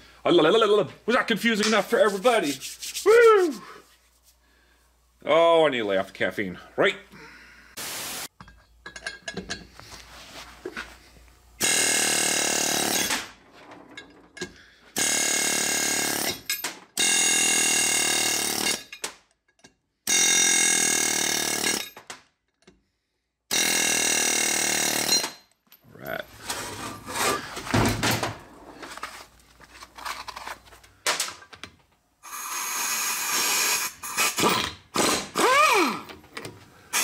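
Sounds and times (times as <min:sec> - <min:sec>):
power tool buzzing: 0:11.6 - 0:13.1.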